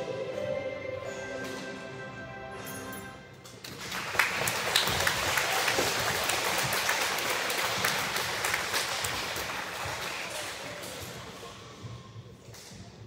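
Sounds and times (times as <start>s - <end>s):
crowd applauding in echoing hall: 3.6s - 11.5s.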